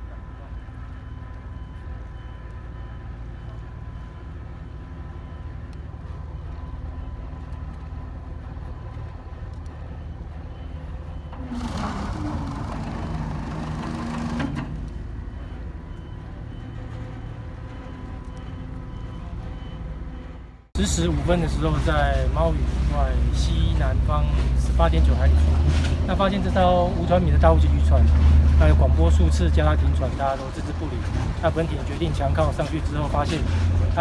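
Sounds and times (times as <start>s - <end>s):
boat diesel engine rumbling: 0.0s - 34.0s.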